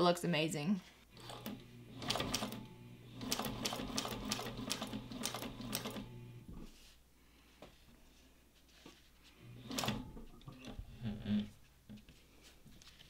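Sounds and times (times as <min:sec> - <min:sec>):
sewing machine motor hum: 0:01.1 - 0:06.5, 0:09.5 - 0:11.4
sewing machine needle ticking: 0:01.2 - 0:06.1.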